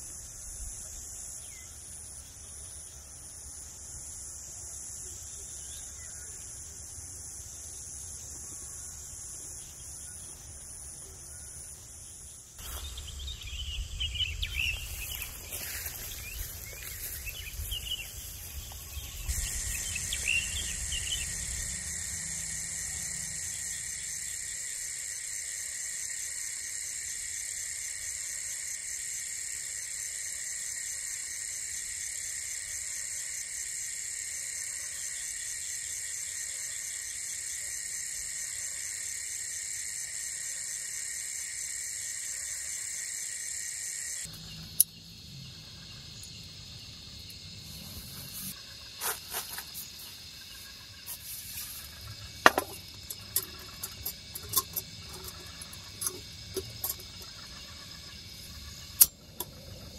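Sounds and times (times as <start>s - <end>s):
crickets and insects trilling: 0.0s - 59.9s
chirping calls: 12.6s - 22.1s.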